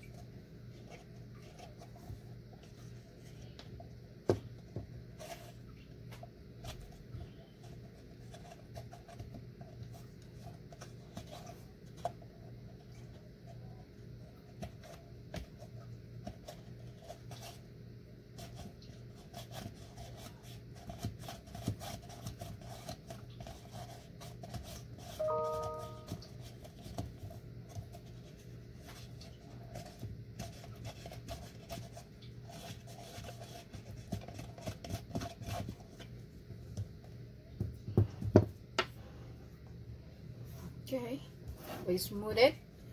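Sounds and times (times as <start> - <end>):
short pitched tone: 25.2 - 26.2.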